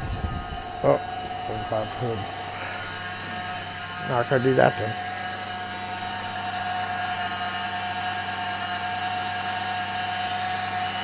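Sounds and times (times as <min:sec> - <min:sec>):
car engine idling: 0:00.0 - 0:08.0.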